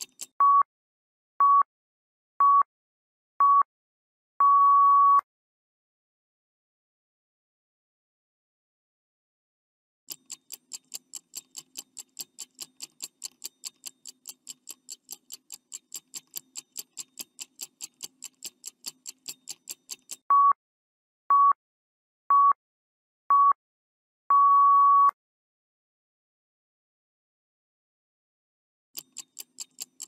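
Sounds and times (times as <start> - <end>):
clock ticking: 0.0 - 0.4, 10.1 - 20.3, 29.0 - 30.0
short beeps: 4.4 - 5.3, 20.3 - 20.6, 21.3 - 21.6, 22.3 - 22.6, 23.3 - 23.6, 24.3 - 25.2.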